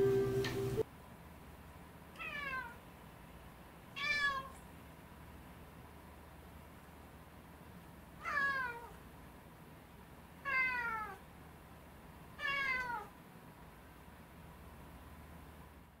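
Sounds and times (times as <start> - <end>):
cat meowing: 2.2 - 2.8, 4.0 - 4.6, 8.2 - 9.0, 10.4 - 11.2, 12.4 - 13.1.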